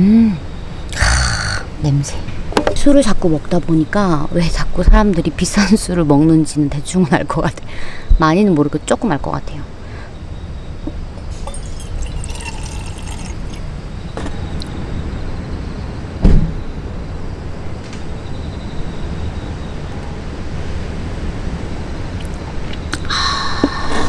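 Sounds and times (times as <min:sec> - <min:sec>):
breathy exclamation: 0:00.0 - 0:01.8
liquid pouring into metal cup: 0:11.4 - 0:13.7
loud thump: 0:16.2 - 0:16.6.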